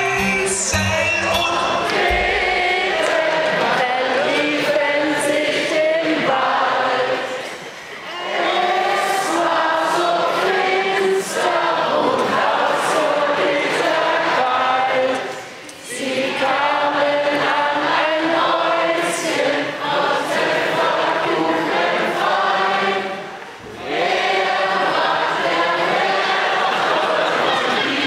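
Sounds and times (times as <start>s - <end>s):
person singing through sound system: 0.0s - 2.8s.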